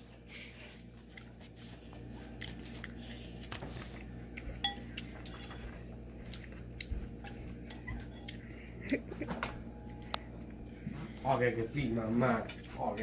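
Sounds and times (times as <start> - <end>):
cutlery clinking on ceramic bowl: 4.6 - 5.7.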